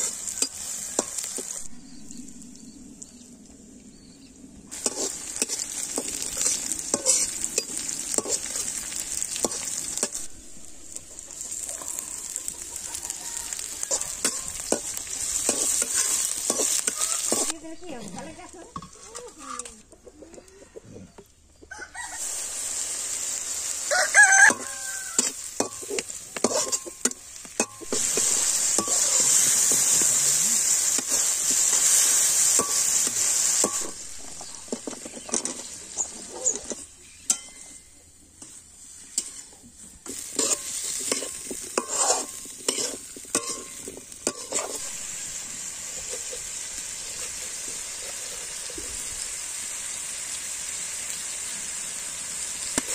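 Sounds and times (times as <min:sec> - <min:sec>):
masala sizzling in a pan: 0:00.0 - 0:19.7, 0:21.7 - 0:52.9
metal spatula scraping a pan: 0:04.7 - 0:12.9, 0:13.6 - 0:17.5, 0:18.7 - 0:19.8, 0:23.6 - 0:48.8
rooster crowing: 0:12.0 - 0:14.2, 0:21.7 - 0:22.4, 0:23.8 - 0:25.4.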